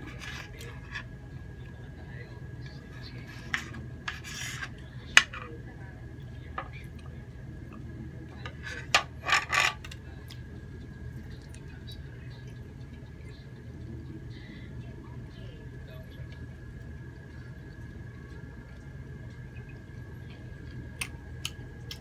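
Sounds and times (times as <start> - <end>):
cutlery scraping ceramic plate: 3.2 - 5.4, 8.5 - 10.0.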